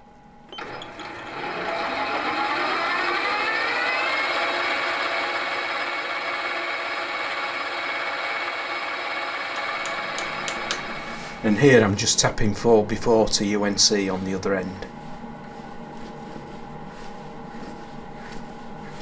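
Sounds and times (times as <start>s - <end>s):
lathe motor whine: 0.5s - 12.0s.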